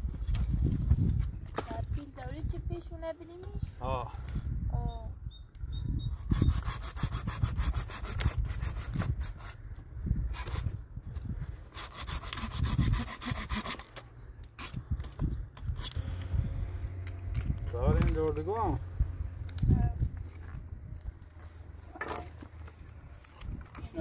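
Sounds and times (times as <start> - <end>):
low rumble: 16.0 - 22.0
dry branches snapping: 19.4 - 24.0.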